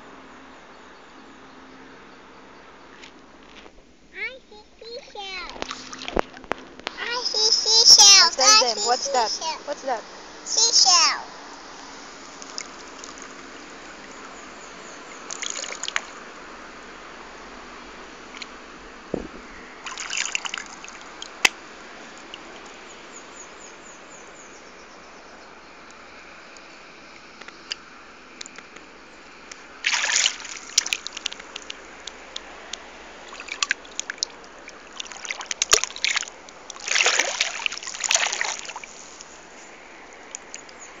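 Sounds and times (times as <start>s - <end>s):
water sloshing over sand: 4.7s - 23.8s, 29.2s - 40.9s
hands splashing in water and sand: 15.2s - 16.2s, 19.2s - 22.7s, 29.8s - 39.5s.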